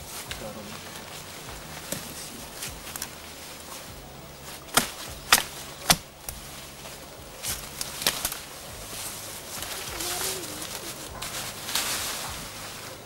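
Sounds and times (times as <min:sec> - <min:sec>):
hatchet chopping sapling: 0:04.6 - 0:06.6, 0:07.4 - 0:08.6.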